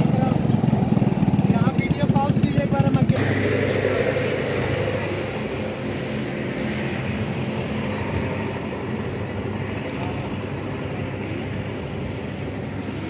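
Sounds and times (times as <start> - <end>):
small engine idling: 0.0 - 5.6.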